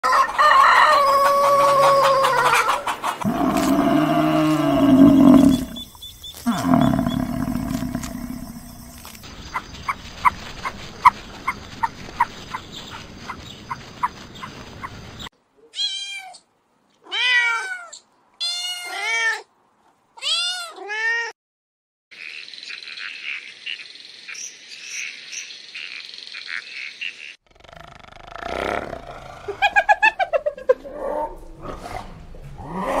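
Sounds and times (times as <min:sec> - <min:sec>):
loud drawn-out animal cry: 0:01.6 - 0:05.9, 0:06.5 - 0:09.0.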